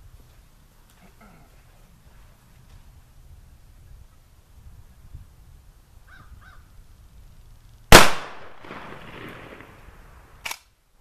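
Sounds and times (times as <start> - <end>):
shotgun shot with echo: 7.9 - 9.7.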